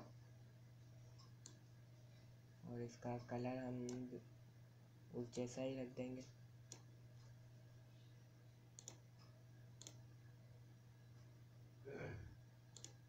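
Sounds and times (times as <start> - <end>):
low electrical hum: 0.0 - 13.0
computer mouse clicks: 1.2 - 1.7, 3.8 - 4.1, 6.7 - 7.4, 8.8 - 10.1, 12.7 - 13.0.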